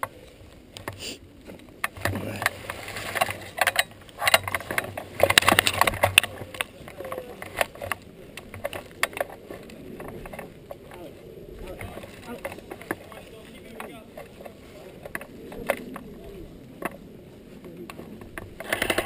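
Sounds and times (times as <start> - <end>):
toy gun rattling and clicking: 18.6 - 19.0.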